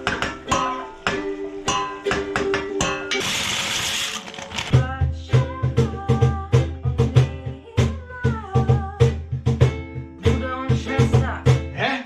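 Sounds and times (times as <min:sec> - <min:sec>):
ukulele strumming: 0:00.0 - 0:07.6, 0:09.1 - 0:11.8
woman singing: 0:00.5 - 0:09.6, 0:10.2 - 0:11.7.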